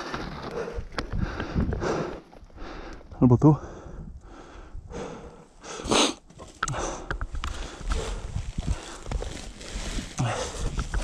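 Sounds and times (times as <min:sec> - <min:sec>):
loud breath: 0:00.0 - 0:10.8
dirt bike being dragged: 0:07.9 - 0:11.0.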